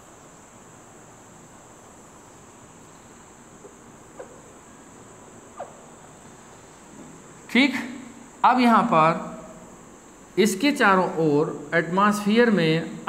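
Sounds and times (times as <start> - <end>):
steady high-pitched whine: 0.0 - 13.0
marker squeaking on whiteboard: 5.6 - 5.9.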